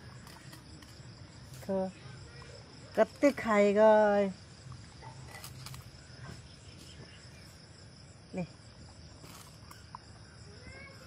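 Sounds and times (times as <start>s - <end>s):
insect chirring: 0.0s - 11.0s.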